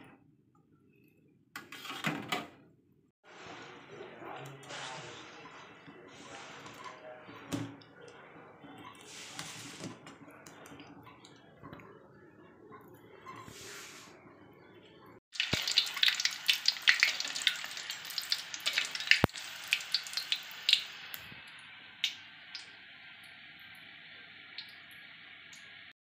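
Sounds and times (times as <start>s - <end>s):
deep-frying crackling and sizzling: 15.3s - 25.9s.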